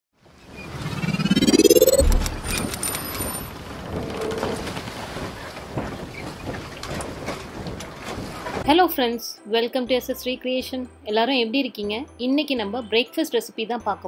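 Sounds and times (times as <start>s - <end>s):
rising whoosh tone: 0.6s - 3.0s
low boom: 1.0s - 2.8s
scattered clicks: 1.6s - 3.3s.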